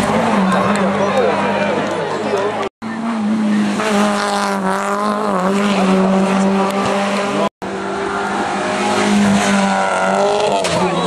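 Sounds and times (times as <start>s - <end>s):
rally car engine at high revs: 2.8s - 11.0s.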